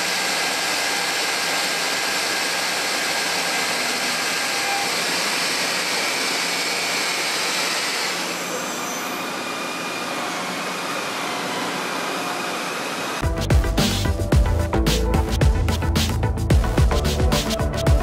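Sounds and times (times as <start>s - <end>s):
machining hiss and whir: 0.0s - 13.2s
electronic music: 13.2s - 18.0s.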